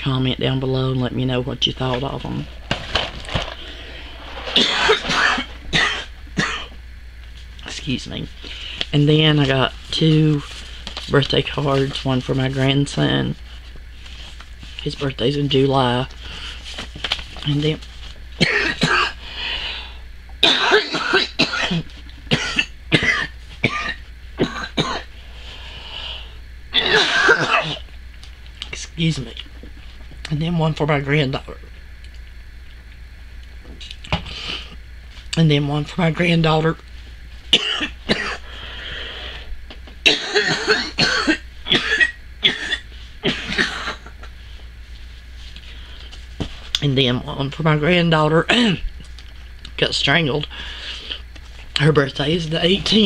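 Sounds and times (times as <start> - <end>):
person coughing: 4.5 - 6.8, 18.4 - 19.2, 20.4 - 25.1, 26.7 - 27.8, 37.5 - 38.4, 40.0 - 44.3.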